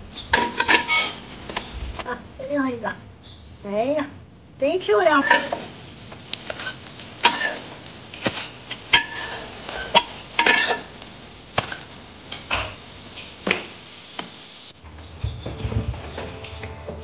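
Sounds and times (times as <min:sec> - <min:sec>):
metal spatula clinking on wok: 0:09.9 - 0:10.8.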